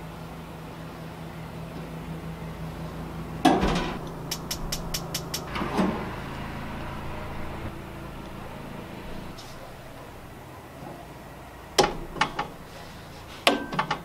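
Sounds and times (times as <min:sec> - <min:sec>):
steady low hum: 0:00.0 - 0:13.7
grill igniter clicking: 0:03.4 - 0:10.4.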